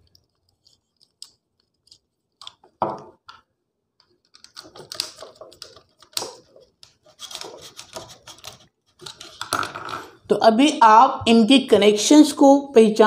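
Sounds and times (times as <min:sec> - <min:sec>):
wires clicking and rustling: 0:00.0 - 0:10.3.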